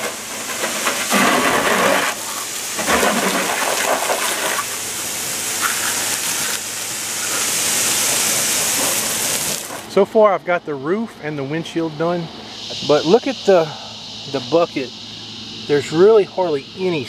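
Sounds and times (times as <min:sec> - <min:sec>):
hose water spraying on metal: 0:00.0 - 0:10.3, 0:12.0 - 0:17.0.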